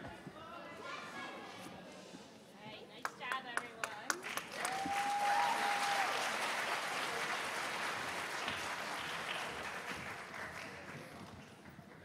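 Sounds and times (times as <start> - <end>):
audience applauding: 3.8 - 11.4.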